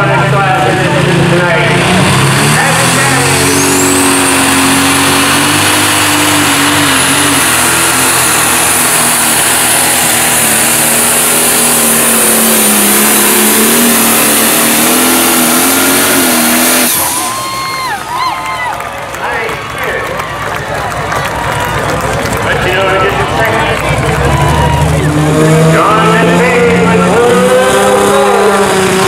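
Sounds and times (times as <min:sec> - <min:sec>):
diesel tractor engine at full throttle: 0:00.0 - 0:29.0.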